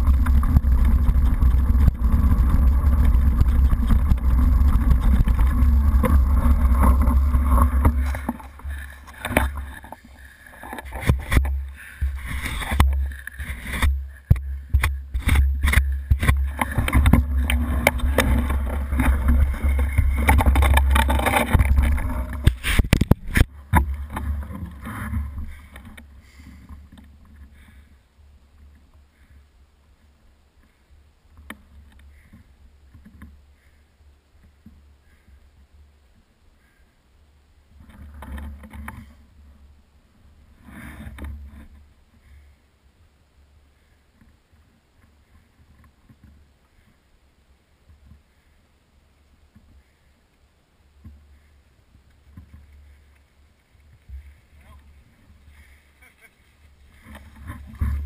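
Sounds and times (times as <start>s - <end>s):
knocks and rattles: 0.0s - 26.0s
wind buffeting rumble: 0.0s - 26.2s
bike tyre noise: 0.0s - 27.9s, 51.0s - 58.0s.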